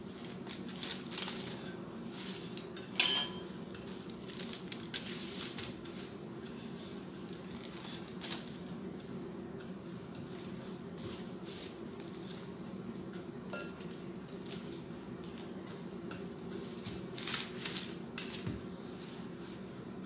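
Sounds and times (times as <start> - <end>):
parchment paper rustling: 0.0 - 2.6, 3.9 - 9.2, 13.9 - 19.6.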